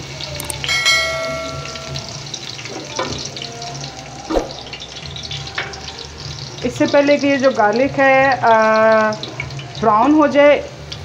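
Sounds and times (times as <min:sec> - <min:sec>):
garlic sizzling in hot oil: 0:00.0 - 0:11.0
short ringing tone: 0:00.7 - 0:02.3.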